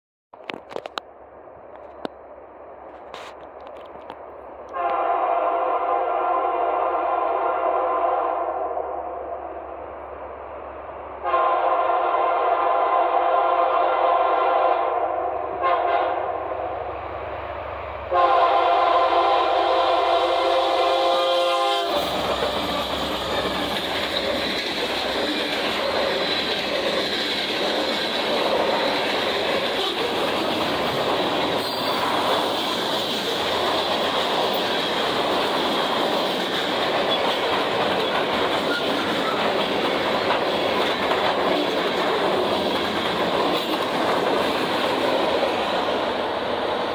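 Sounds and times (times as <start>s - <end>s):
freight train rumbling past: 0.4s - 46.9s
locomotive air horn: 4.7s - 8.8s, 11.2s - 16.4s, 18.1s - 22.8s.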